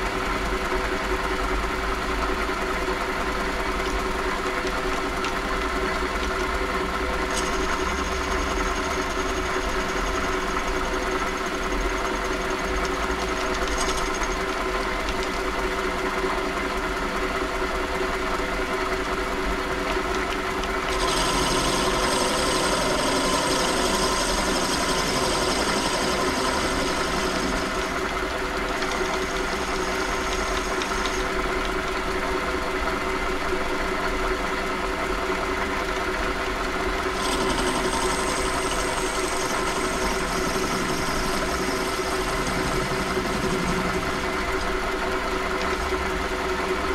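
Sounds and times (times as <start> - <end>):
lathe motor humming: 19.8 - 33.6, 36.7 - 46.9.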